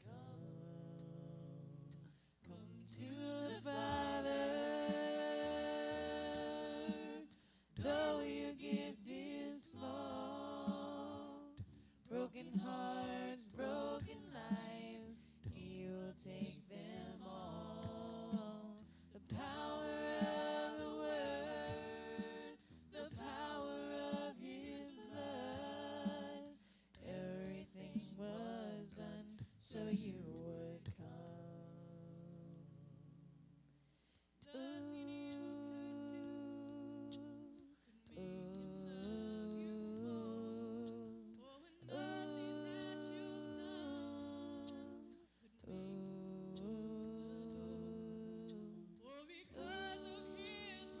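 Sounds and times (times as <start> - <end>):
person singing over music: 2.7 - 11.6, 12.2 - 15.6, 16.2 - 31.5, 34.4 - 51.0.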